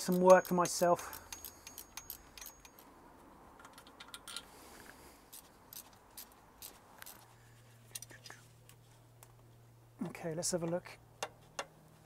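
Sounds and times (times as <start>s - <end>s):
hand tools tapping on metal: 0.0s - 2.9s.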